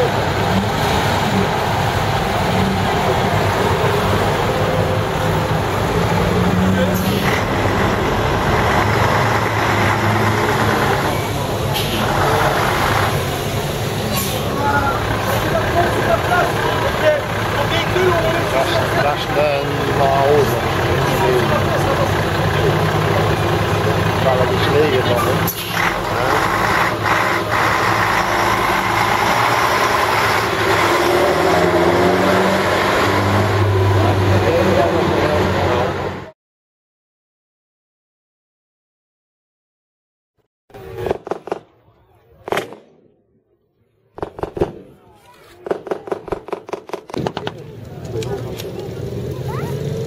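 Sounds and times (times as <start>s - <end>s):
diesel truck engine running: 0.0s - 36.3s.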